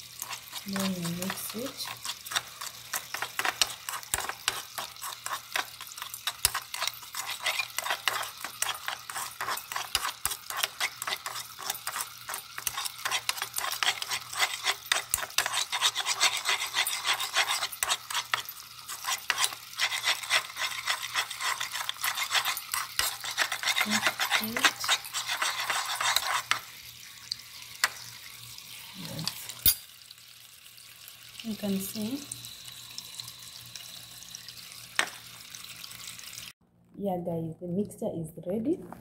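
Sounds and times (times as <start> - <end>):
metal spoon scraping a cup: 0.2 - 26.7.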